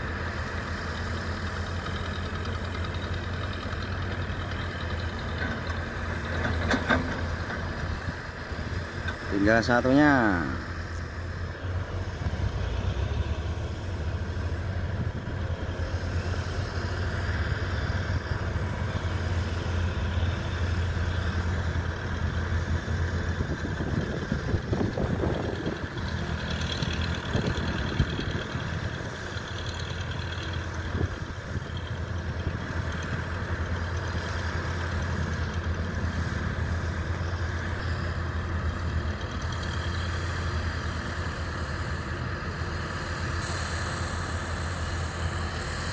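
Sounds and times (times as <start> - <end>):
diesel engines humming and revving: 0.0 - 45.9.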